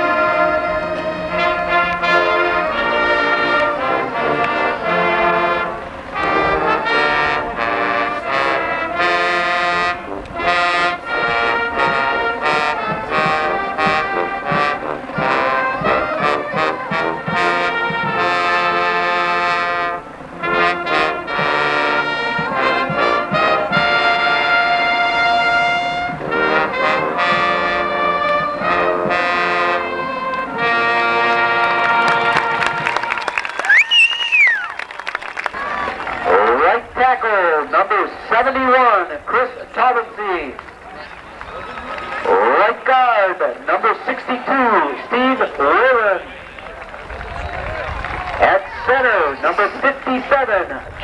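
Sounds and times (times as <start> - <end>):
brass marching band playing: 0.0 - 51.0.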